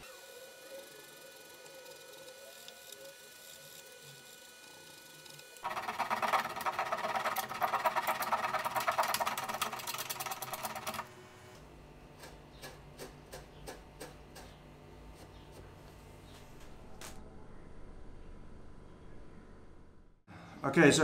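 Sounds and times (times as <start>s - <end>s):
hand saw cutting wood: 5.6s - 11.0s.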